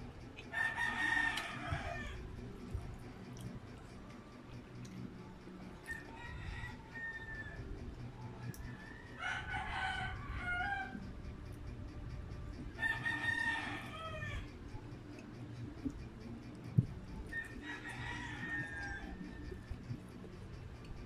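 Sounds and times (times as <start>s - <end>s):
rooster crowing: 0.5s - 2.4s, 5.8s - 7.8s, 8.6s - 11.1s, 12.8s - 14.6s, 17.2s - 20.0s.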